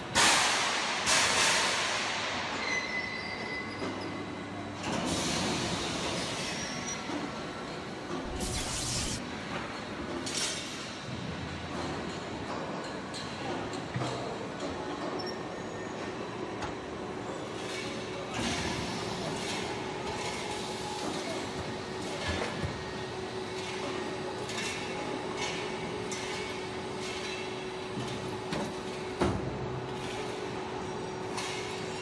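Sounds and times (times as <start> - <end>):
machinery din with hum: 0.0 - 10.4.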